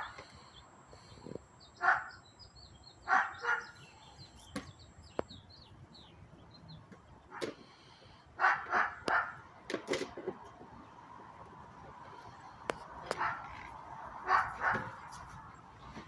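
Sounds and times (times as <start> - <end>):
small birds chirping: 0.0 - 9.2.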